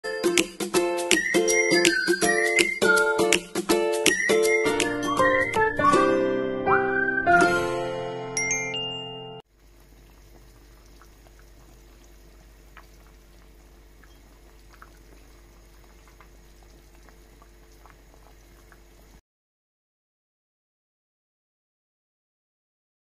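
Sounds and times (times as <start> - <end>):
low steady hum: 9.5 - 19.2
soup bubbles popping: 9.5 - 19.2.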